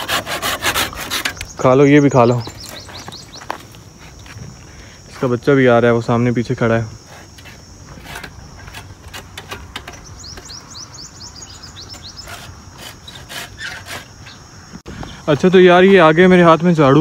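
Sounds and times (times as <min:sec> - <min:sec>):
high insect drone: 0:00.0 - 0:17.0
falling bird chirps: 0:01.0 - 0:03.7, 0:09.7 - 0:15.3.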